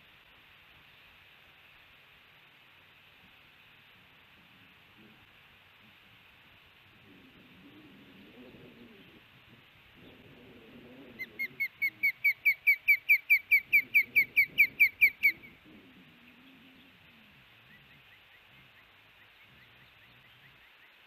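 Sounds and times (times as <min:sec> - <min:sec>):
osprey alarm call whistles: 0:11.2 - 0:15.5.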